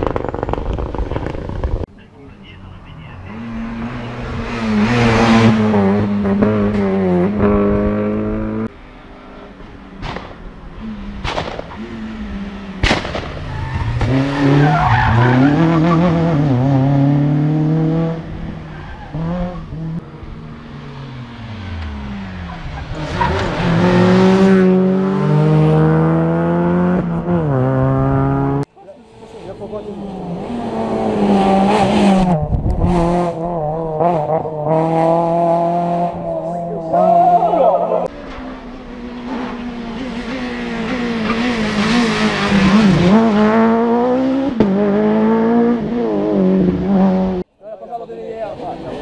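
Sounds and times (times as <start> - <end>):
sharp cracks: 0.0 - 1.8, 10.0 - 10.4, 11.2 - 11.8, 12.8 - 14.2
rally car engines revving: 0.0 - 47.5, 48.1 - 49.0.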